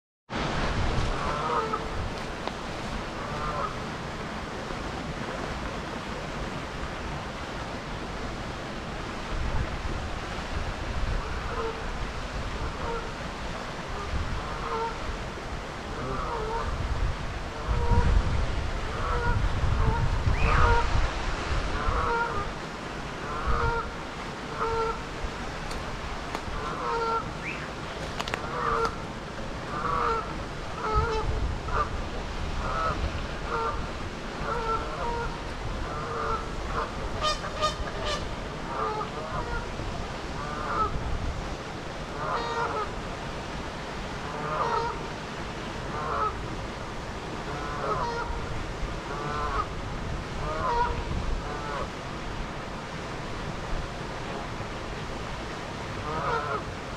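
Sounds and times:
geese honking: 0:01.1 - 0:01.9, 0:03.2 - 0:03.8, 0:21.8 - 0:22.6, 0:23.2 - 0:23.9, 0:24.5 - 0:25.0, 0:26.6 - 0:27.6, 0:28.4 - 0:29.0, 0:29.7 - 0:31.9, 0:34.4 - 0:39.7, 0:40.4 - 0:41.0, 0:42.2 - 0:42.9, 0:44.3 - 0:45.0, 0:45.9 - 0:46.4, 0:47.5 - 0:48.4, 0:49.1 - 0:49.7, 0:50.4 - 0:51.9, 0:56.0 - 0:56.7.

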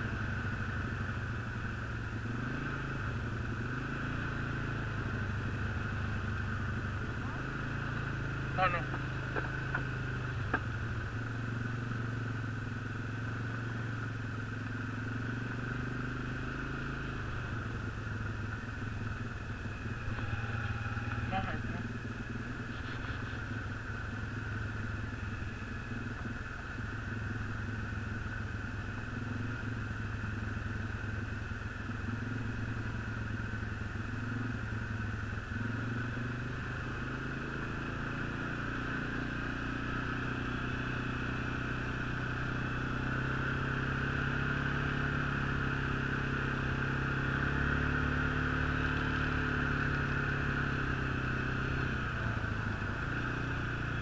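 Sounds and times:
snowmobile engine running: 0:00.0 - 0:12.4, 0:15.3 - 0:29.6, 0:50.6 - 0:54.0.

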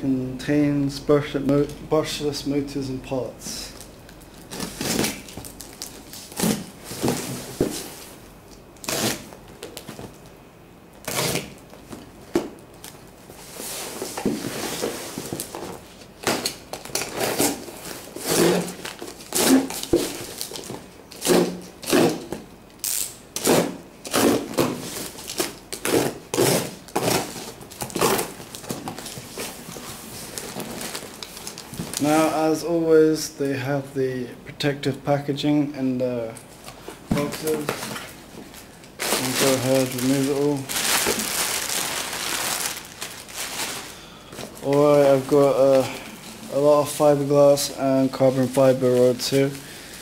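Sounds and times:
packing tape ripping off cardboard: 0:04.3 - 0:08.0, 0:08.8 - 0:10.2, 0:11.0 - 0:13.0, 0:13.8 - 0:32.3, 0:37.1 - 0:38.2, 0:39.0 - 0:45.8
cardboard lid rustling: 0:06.4 - 0:08.1.

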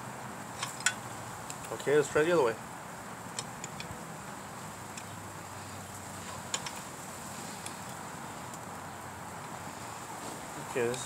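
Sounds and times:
steady background hiss: 0:00.0 - 0:11.0
metal clicks and taps: 0:03.3 - 0:03.9, 0:06.5 - 0:06.8.

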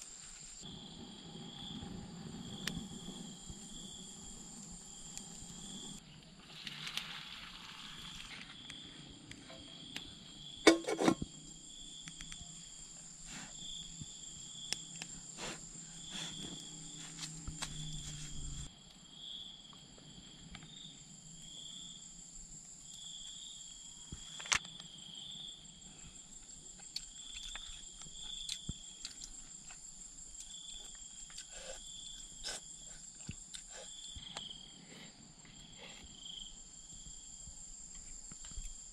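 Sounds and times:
continuous high whine: 0:00.0 - 0:06.4, 0:08.1 - 0:34.5
insects chirping: 0:00.0 - 0:38.9
dishes clattering: 0:10.7 - 0:11.2.

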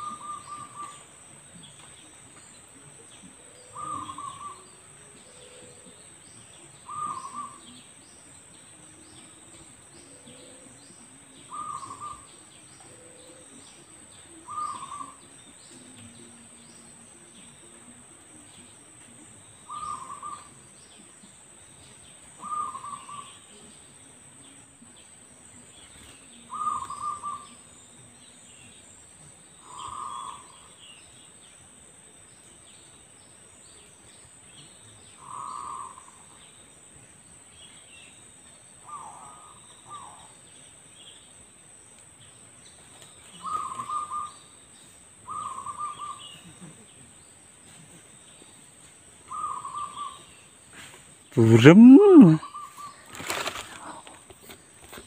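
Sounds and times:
dove cooing: 0:00.0 - 0:01.1, 0:02.8 - 0:08.0, 0:08.9 - 0:16.5, 0:17.2 - 0:20.7, 0:22.4 - 0:23.6, 0:26.0 - 0:27.6, 0:29.6 - 0:30.7, 0:35.2 - 0:36.3, 0:43.4 - 0:44.4, 0:45.3 - 0:46.8, 0:49.3 - 0:50.3.

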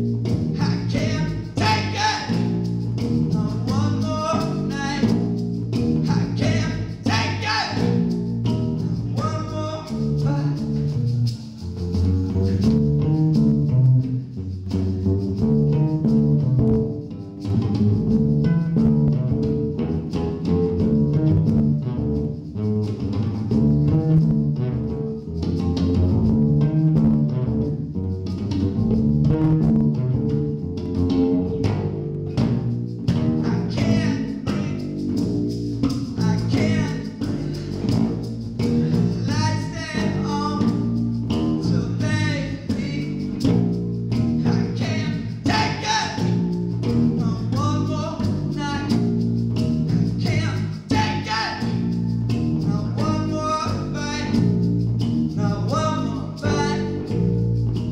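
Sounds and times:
acoustic bass guitar plucked: 0:00.0 - 0:57.9
man singing: 0:00.6 - 0:02.7, 0:03.3 - 0:05.3, 0:06.0 - 0:10.8, 0:33.4 - 0:38.0, 0:38.6 - 0:41.0, 0:41.6 - 0:43.6, 0:44.4 - 0:46.5, 0:47.2 - 0:49.0, 0:49.9 - 0:52.0, 0:52.6 - 0:54.5, 0:55.4 - 0:57.2.

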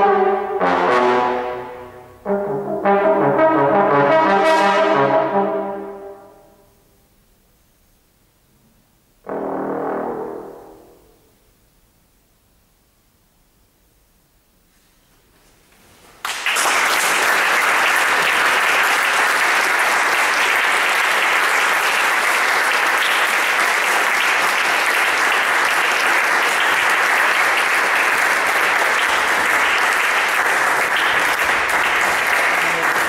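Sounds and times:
audience applauding: 0:16.2 - 0:33.0.

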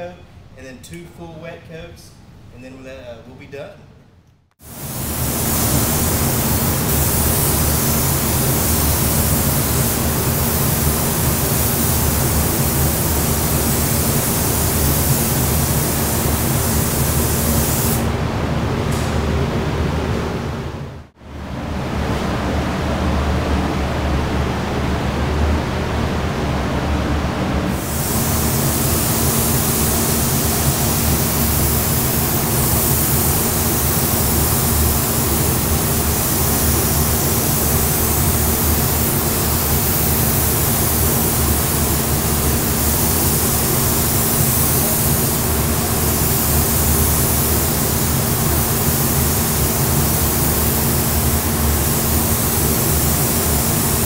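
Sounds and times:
spray gun hissing: 0:04.6 - 0:18.1, 0:27.7 - 0:54.0.

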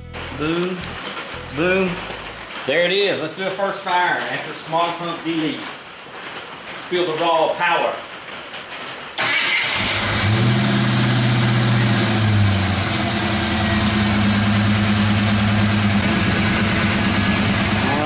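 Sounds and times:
car engine starting and idling: 0:00.0 - 0:03.0, 0:09.2 - 0:18.0.

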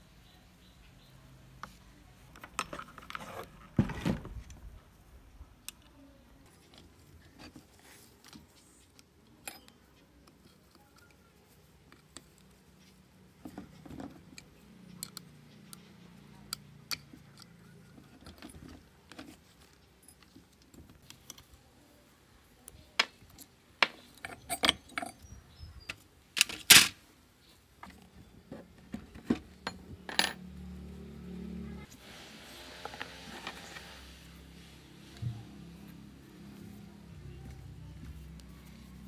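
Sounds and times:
small metal parts clinking: 0:08.2 - 0:11.2, 0:23.0 - 0:25.4, 0:29.2 - 0:30.4.

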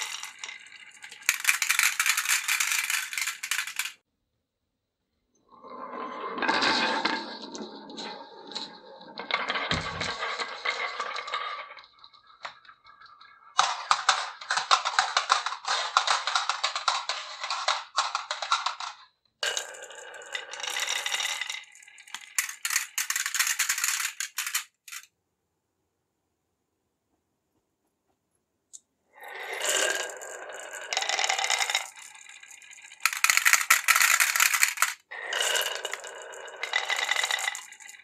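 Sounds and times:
marbles rolling down wooden tracks: 0:00.0 - 0:04.0, 0:06.4 - 0:25.1, 0:29.2 - 0:38.0.

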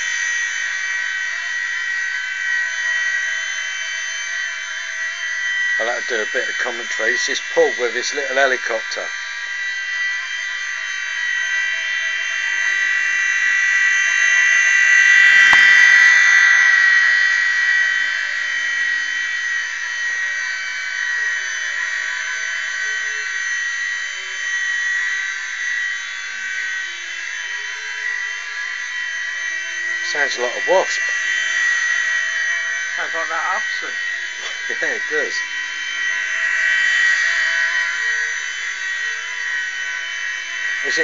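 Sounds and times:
rc helicopter buzzing: 0:00.0 - 0:41.0
brief click: 0:15.4 - 0:15.8.

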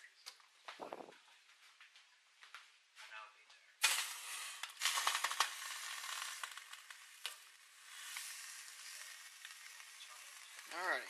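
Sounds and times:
water sizzling on hot burner: 0:03.8 - 0:11.0.

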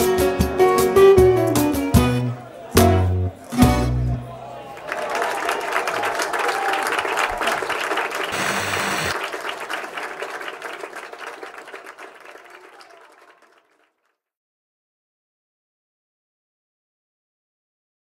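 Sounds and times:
audience applauding: 0:04.6 - 0:14.0.

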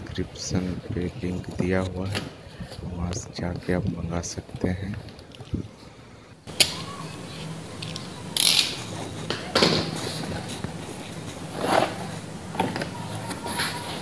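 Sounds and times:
faint low hum: 0:00.0 - 0:14.0
cardboard box scraping and rustling: 0:09.8 - 0:14.0.

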